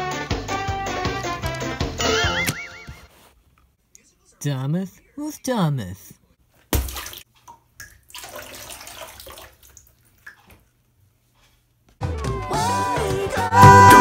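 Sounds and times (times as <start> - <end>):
cartoon music: 2.0 - 3.0, 12.2 - 14.0
person speaking: 3.9 - 6.4
water sloshing and trickling: 6.7 - 11.0.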